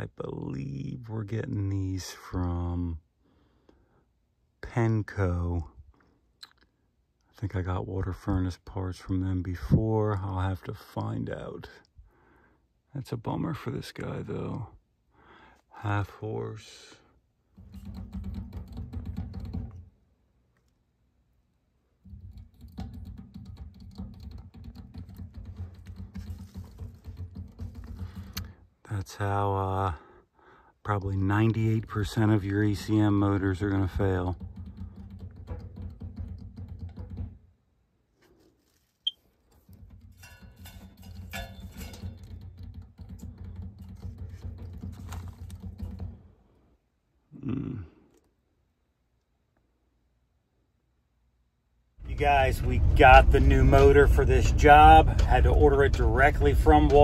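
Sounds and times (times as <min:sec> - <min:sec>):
blower motor rattling clatter: 0:52.5 - 0:57.0.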